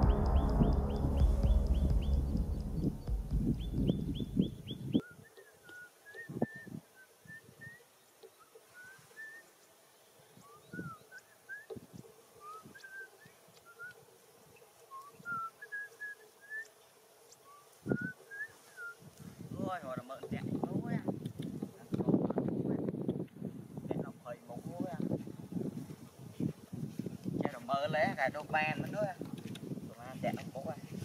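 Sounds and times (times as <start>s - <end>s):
footsteps on grass: 0.0s - 4.8s, 25.0s - 27.7s
low rumble: 0.0s - 4.9s
fast repeated high chirp: 0.0s - 5.0s
small birds chirping: 0.0s - 20.2s.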